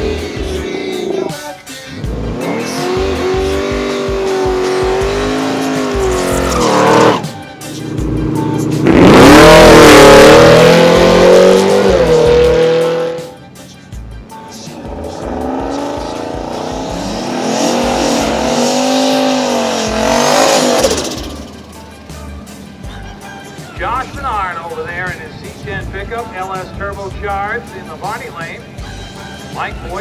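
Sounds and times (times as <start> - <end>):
engines revving hard: 0.0 - 13.4, 14.7 - 21.7
tire squeal: 2.6 - 7.4.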